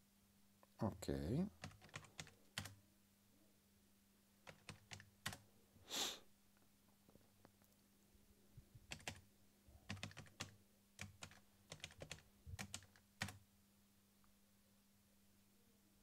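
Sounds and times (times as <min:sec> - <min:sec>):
typing on a keyboard: 0:01.6 - 0:02.8, 0:04.4 - 0:05.4, 0:08.9 - 0:09.2, 0:09.9 - 0:13.4.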